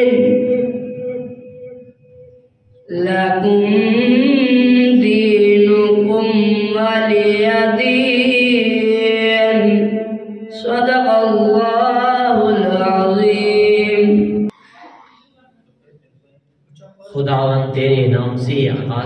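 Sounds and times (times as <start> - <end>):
boy chanting into microphone: 0.0 - 1.3, 2.8 - 16.0.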